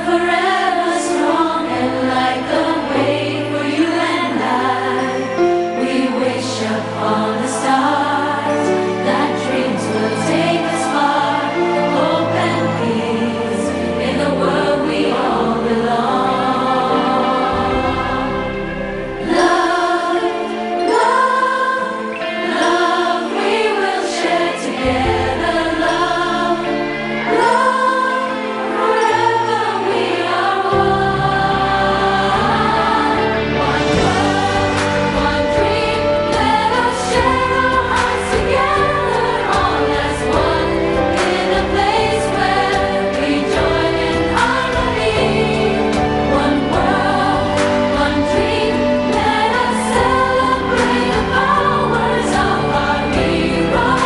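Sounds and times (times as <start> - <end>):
song with singing: 0.0 - 54.0
steady bass line: 30.8 - 54.0.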